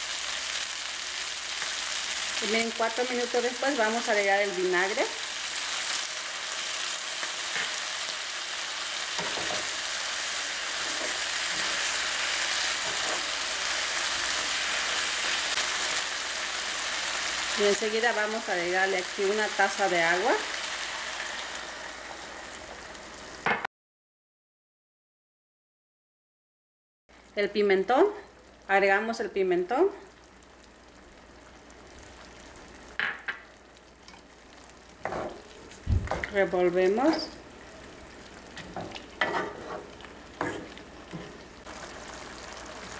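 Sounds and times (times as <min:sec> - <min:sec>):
vegetables sizzling in a frying pan: 0:00.0 - 0:23.6, 0:27.1 - 0:42.9
wooden spoon scraping a pan: 0:38.6 - 0:41.5.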